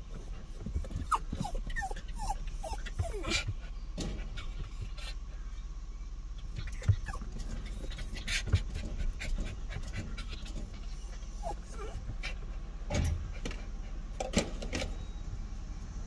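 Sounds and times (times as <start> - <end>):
dog panting: 0.0 - 5.2, 6.5 - 14.2
dog whimpering: 0.1 - 3.6, 6.6 - 8.6, 9.2 - 12.4.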